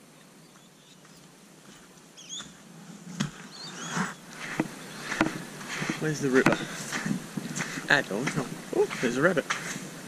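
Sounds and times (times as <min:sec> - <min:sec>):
footsteps crunching on sand: 0:00.6 - 0:10.0
high bird chirps: 0:02.2 - 0:02.5, 0:03.5 - 0:05.1.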